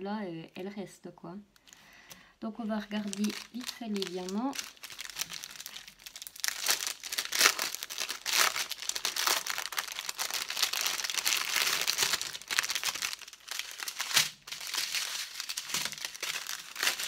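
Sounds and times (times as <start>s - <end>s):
plastic packaging crinkling: 2.8s - 17.0s.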